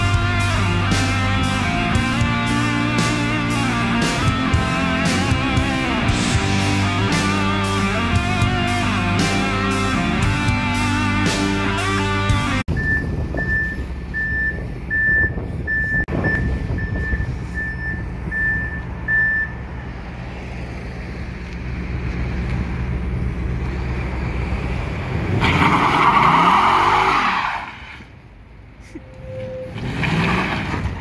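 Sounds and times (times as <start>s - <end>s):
car engine rumbling: 0.0s - 31.0s
repeating beep: 12.7s - 19.6s.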